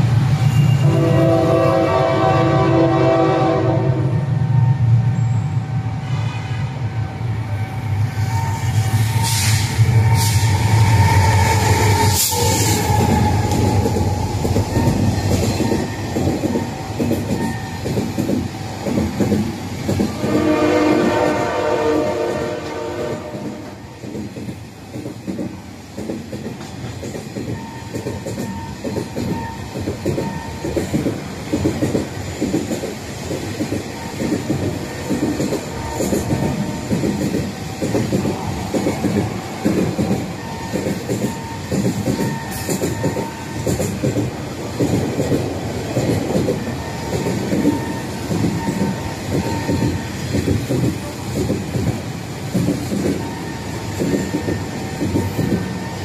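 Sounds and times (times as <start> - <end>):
train wheels clattering over rail joints: 11.3 - 21.5, 22.5 - 56.0.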